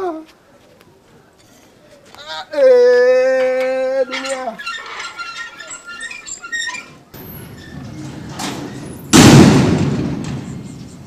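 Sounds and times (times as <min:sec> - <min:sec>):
high-pitched chirps and squeaks: 0:04.1 - 0:07.8.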